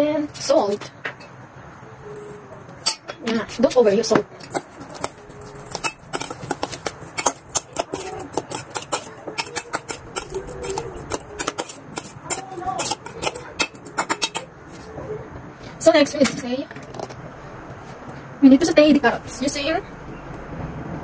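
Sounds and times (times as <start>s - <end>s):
metal spoon scraping steel bowl: 4.4s - 14.9s.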